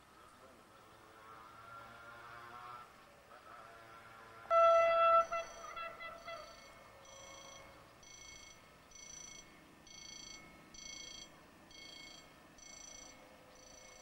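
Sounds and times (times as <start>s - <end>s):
electronic railway warning bell: 4.5s - 14.0s.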